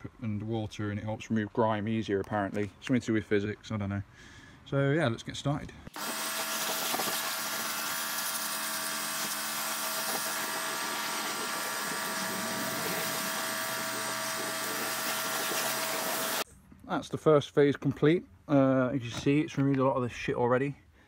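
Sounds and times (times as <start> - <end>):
pressure washer running: 6.0 - 16.4.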